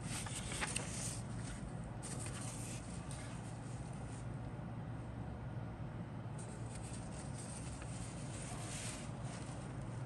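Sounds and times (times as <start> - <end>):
paper sheet rustling: 0.0 - 4.2, 6.4 - 9.7
steady low hum: 0.0 - 10.0.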